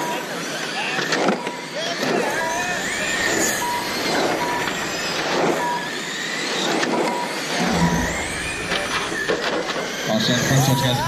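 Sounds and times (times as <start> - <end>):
rc car motors whining: 0.0 - 11.0
short beep: 7.2 - 8.9
low rumble: 7.6 - 9.7.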